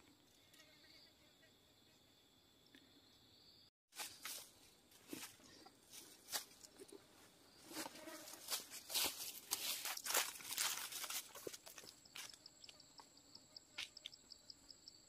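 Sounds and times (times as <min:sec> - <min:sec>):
faint insect drone: 0:00.0 - 0:15.0
footsteps crunching on dry leaves: 0:03.9 - 0:12.4.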